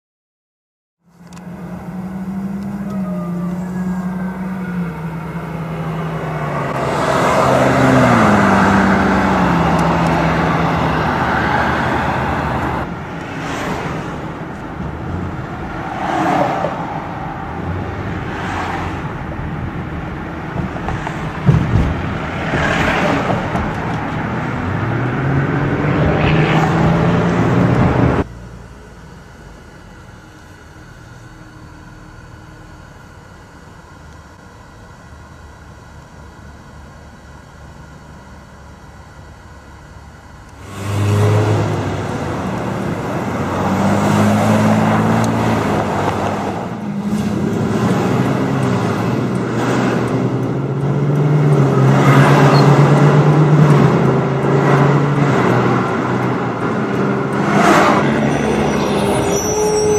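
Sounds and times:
engine revving and accelerating: 1.2 - 19.2, 20.6 - 28.3, 40.5 - 59.9.

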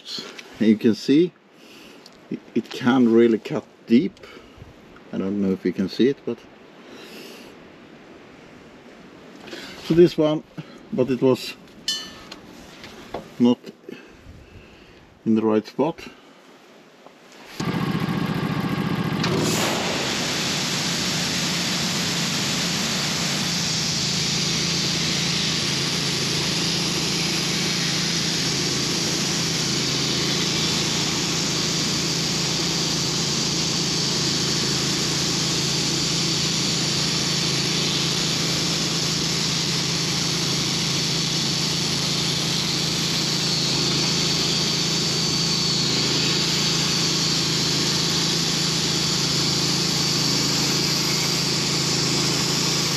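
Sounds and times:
bandsaw mill motor under load: 17.6 - 52.9
spiked wheel scraping bark: 20.4 - 52.9.

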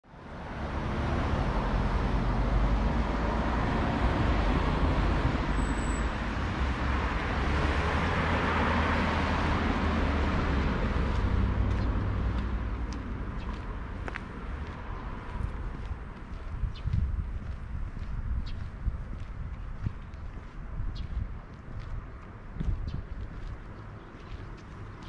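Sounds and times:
cars driving past: 0.1 - 18.1.

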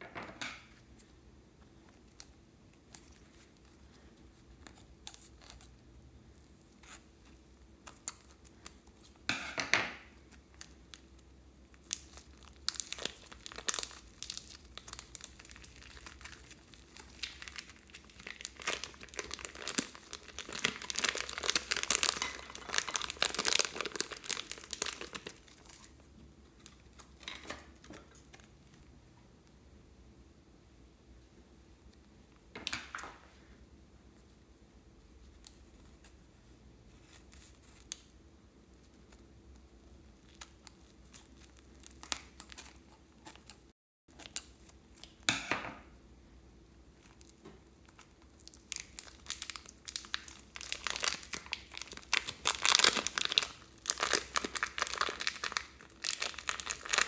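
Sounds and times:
plastic bag crinkling: 10.5 - 28.5, 47.0 - 57.0.

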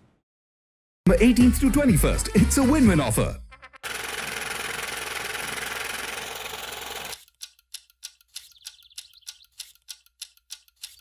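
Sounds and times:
light rapid ticking: 6.9 - 11.0.

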